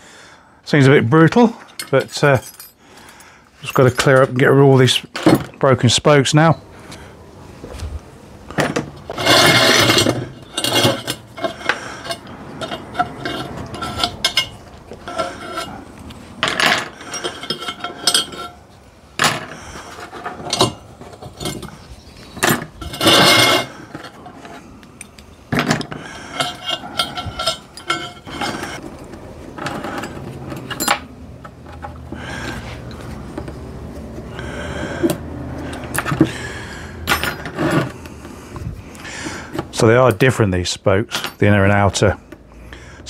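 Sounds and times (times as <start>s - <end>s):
metal spokes clinking and rattling: 8.6s - 21.8s, 22.4s - 33.6s.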